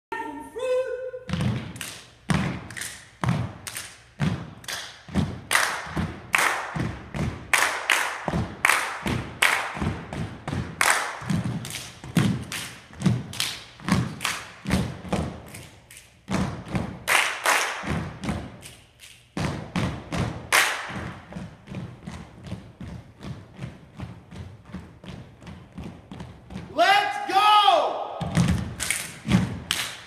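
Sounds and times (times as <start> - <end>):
people clapping in rhythm: 1.4 - 21.6, 28.3 - 30.0.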